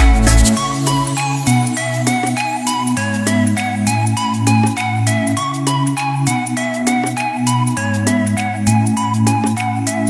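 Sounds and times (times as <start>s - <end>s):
low bass notes: 0.0s - 1.6s
background music with struck notes: 0.0s - 10.0s.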